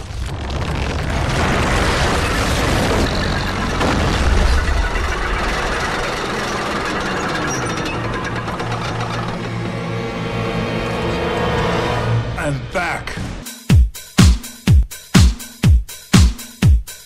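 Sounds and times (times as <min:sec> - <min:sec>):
deep rumbling: 0:00.0 - 0:12.4.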